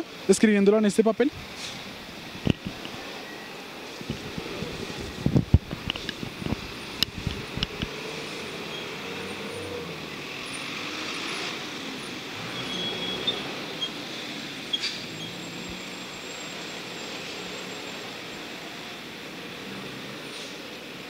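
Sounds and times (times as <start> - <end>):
passing traffic hum: 0.0 - 21.0.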